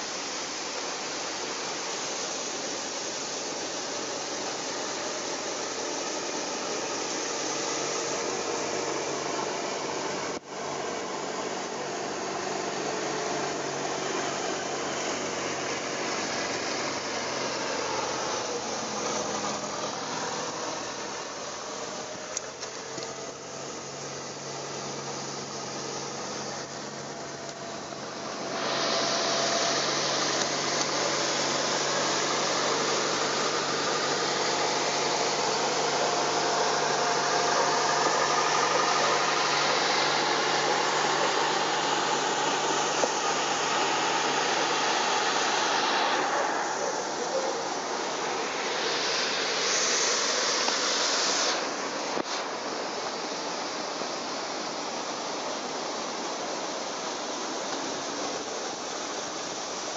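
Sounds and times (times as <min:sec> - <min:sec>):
loud rushing hiss: 0:00.0 - 0:59.9
motorcycle engine running: 0:03.8 - 0:51.0.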